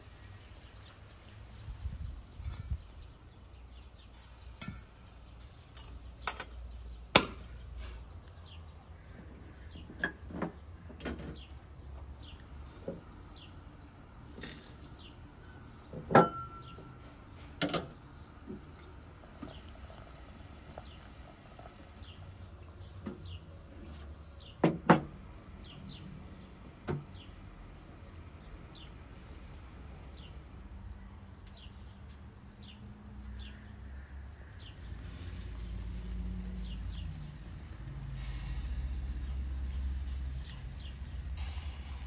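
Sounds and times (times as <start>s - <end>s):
birds chirping faintly: 0.0s - 42.0s
sharp knocks and clinks: 5.7s - 6.6s, 15.9s - 17.0s, 24.6s - 25.2s.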